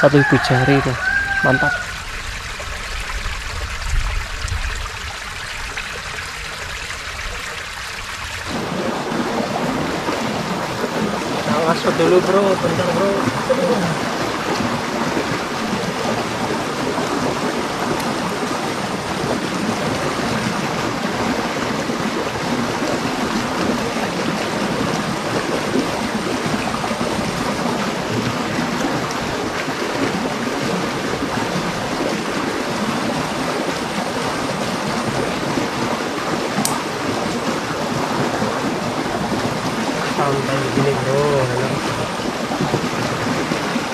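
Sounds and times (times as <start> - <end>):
stream pouring over rocks: 0.0 - 43.9.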